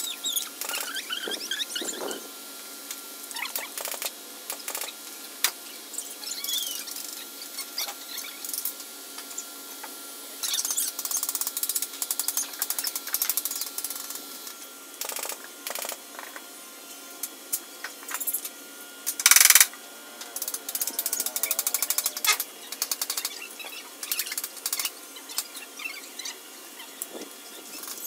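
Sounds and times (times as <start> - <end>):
rapid ratchet-like clicking: 10.4 - 14.3, 15.0 - 16.0, 19.1 - 19.7, 20.4 - 26.0.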